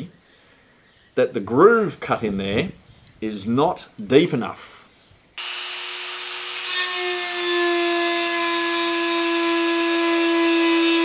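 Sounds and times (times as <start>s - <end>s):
rotary tool grinding metal: 5.4s - 11.0s.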